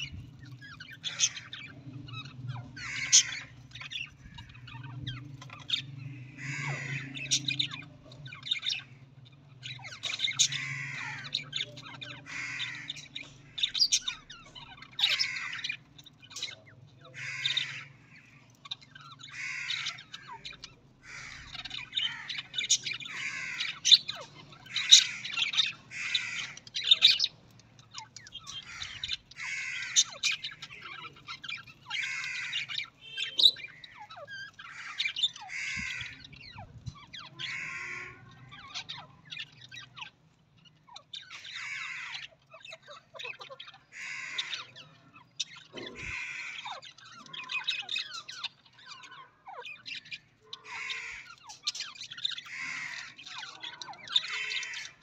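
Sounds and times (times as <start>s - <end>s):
budgerigars chirping and squawking: 0.0s - 55.0s.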